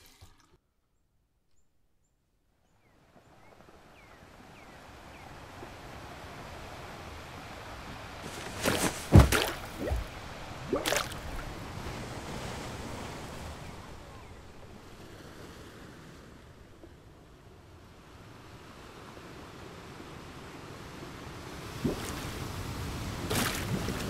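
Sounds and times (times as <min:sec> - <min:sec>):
gentle waves: 0:02.9 - 0:24.0
water splashes: 0:08.2 - 0:13.5, 0:21.6 - 0:24.0.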